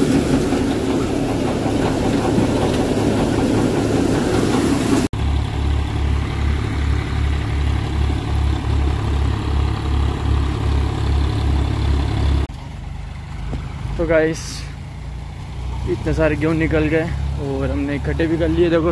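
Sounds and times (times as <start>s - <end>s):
tractor engine: 0.0s - 18.9s.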